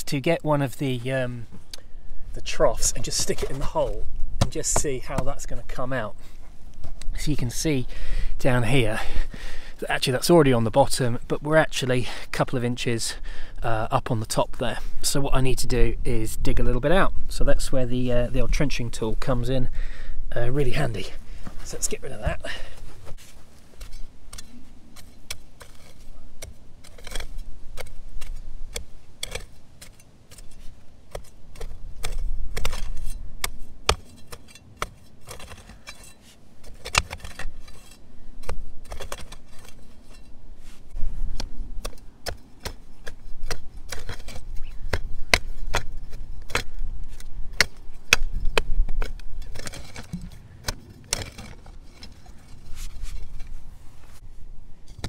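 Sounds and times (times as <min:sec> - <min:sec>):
hoe chopping into hard clay: 0:31.1 - 0:35.7, 0:41.4 - 0:51.5.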